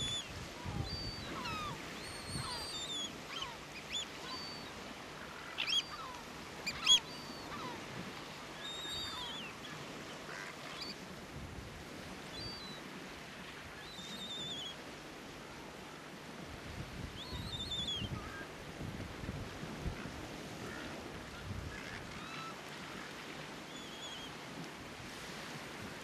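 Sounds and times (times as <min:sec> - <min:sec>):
terns calling: 0:00.0 - 0:07.8.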